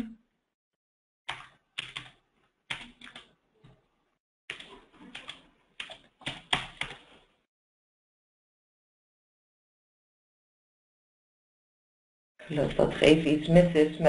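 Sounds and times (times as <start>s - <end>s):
computer keyboard keys clicking: 1.3s - 3.3s, 4.5s - 7.0s.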